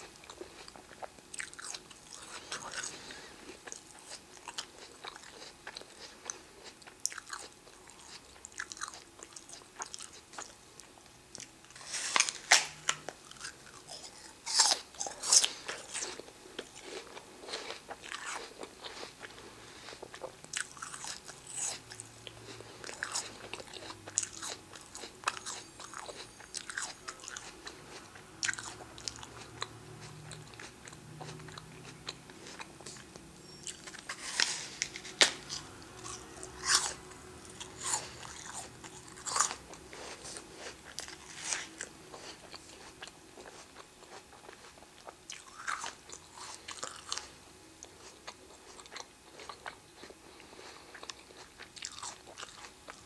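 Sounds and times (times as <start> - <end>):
apple chewing crunches: 0.0 - 53.0
person biting a crisp apple: 11.7 - 16.2.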